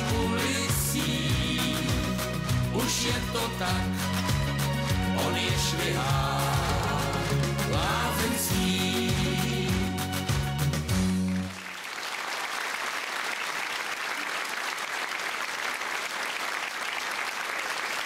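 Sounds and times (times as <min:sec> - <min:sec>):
band playing: 0:00.0 - 0:11.6
audience applauding: 0:00.0 - 0:18.0.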